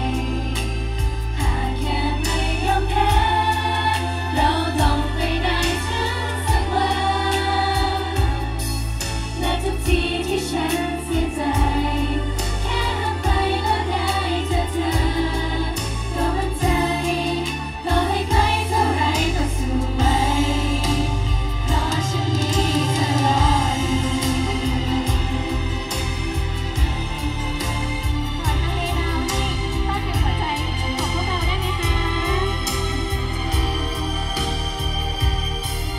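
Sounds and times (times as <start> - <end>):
women singing pop song: 0.0 - 27.4
heavy bass beat: 19.2 - 35.9.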